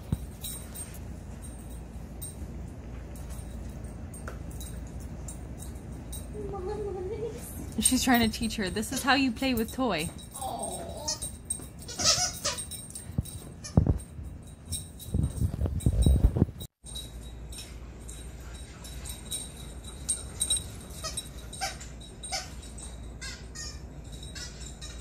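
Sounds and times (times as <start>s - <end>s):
dog whining: 10.4s - 12.7s.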